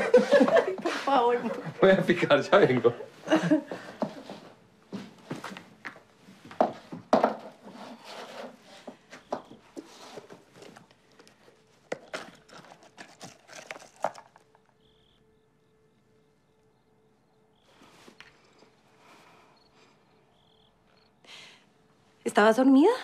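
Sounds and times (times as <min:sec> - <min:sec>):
handbag rummaging rustles and clicks: 0:10.2 - 0:14.7.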